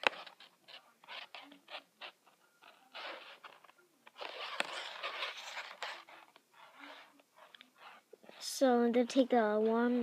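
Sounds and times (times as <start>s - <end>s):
plastic strands rustling and scraping: 4.2s - 8.1s.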